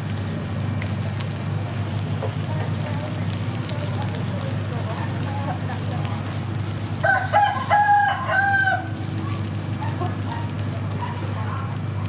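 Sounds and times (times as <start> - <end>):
rooster crowing: 7.0 - 9.0.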